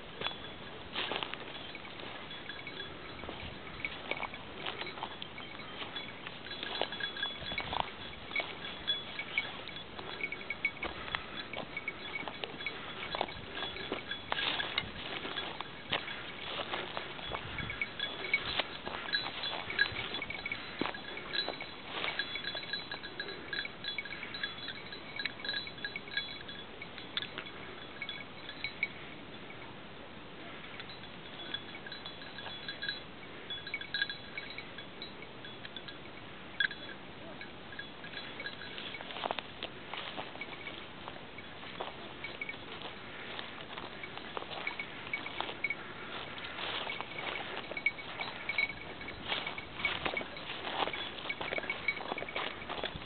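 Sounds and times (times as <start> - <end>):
rustling in brush: 0.0 - 25.6, 38.2 - 53.0
footsteps crunching through bracken: 0.0 - 26.6, 38.1 - 53.0
small bell tinkling: 0.0 - 29.8, 30.7 - 53.0.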